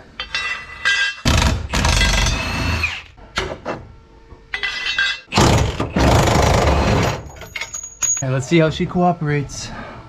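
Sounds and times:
impact wrench hammering: 0:00.2 - 0:02.8.

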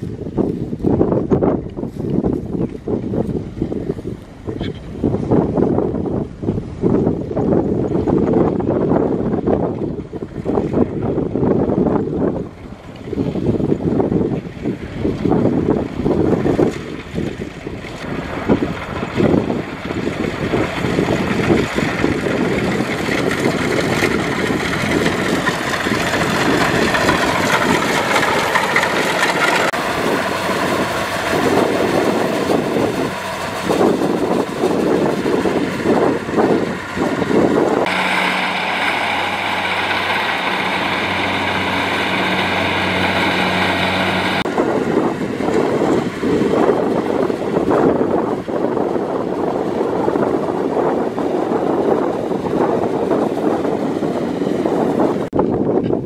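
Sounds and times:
combine harvester engine clattering: 0:18.7 - 0:50.8.

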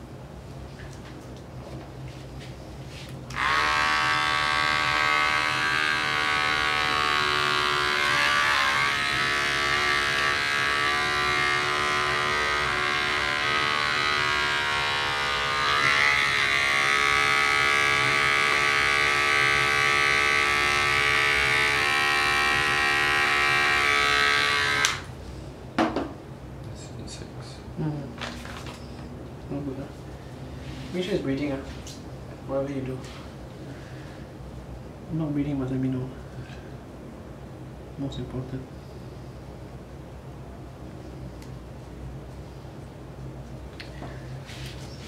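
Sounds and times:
electric hair clippers running: 0:03.3 - 0:25.1.

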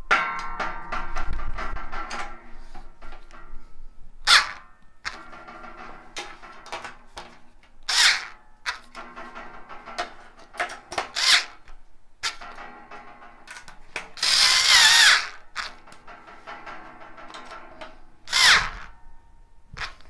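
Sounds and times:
cordless screwdriver whining: 0:07.9 - 0:08.8, 0:11.2 - 0:11.6, 0:14.2 - 0:15.7, 0:18.3 - 0:18.9.

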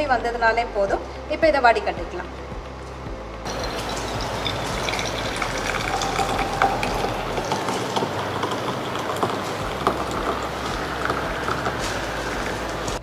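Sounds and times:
liquid pouring and splashing: 0:03.5 - 0:13.0.

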